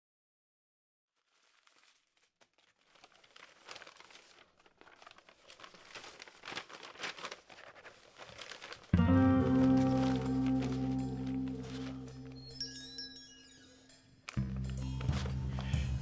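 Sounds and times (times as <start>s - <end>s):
crackling and crinkling: 1.1s - 12.6s, 14.3s - 16.0s.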